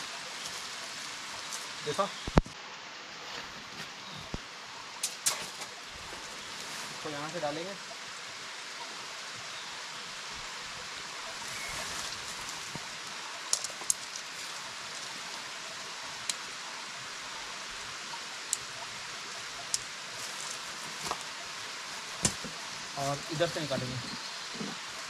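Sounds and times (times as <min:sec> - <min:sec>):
stream rushing: 0:00.0 - 0:25.0
tent pole clicking: 0:13.5 - 0:14.3.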